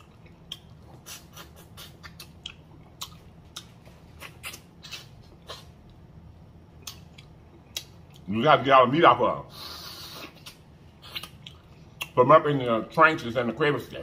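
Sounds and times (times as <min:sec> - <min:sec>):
wet chewing and sucking: 0:00.0 - 0:06.0, 0:09.5 - 0:12.2.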